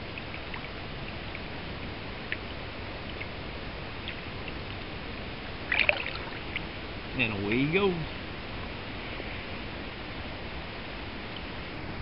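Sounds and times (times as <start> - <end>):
small water drips: 0.0 - 6.7
river water rushing: 3.8 - 6.8
water splashing: 5.4 - 6.8.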